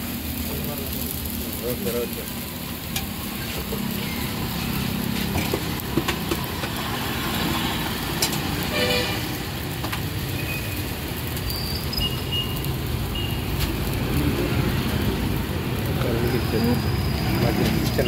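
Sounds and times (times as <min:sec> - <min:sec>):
street traffic noise: 0:00.0 - 0:18.0
vehicle horn tooting: 0:08.7 - 0:09.4.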